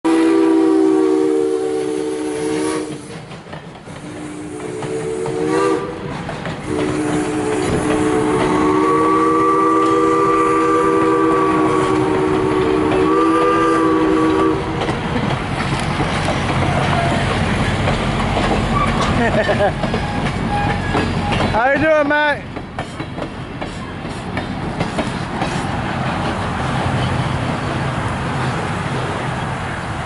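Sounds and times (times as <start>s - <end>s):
steam locomotive chime whistle: 0.1s - 3.2s, 4.1s - 6.0s, 6.6s - 14.8s, 19.9s - 21.6s
train coaches rumbling on rails: 0.1s - 30.0s.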